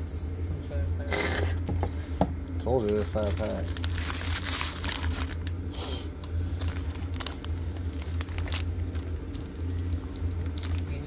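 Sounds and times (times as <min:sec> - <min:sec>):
steady low hum: 0:00.0 - 0:11.0
foil wrappers crinkling: 0:02.8 - 0:05.6, 0:06.5 - 0:11.0.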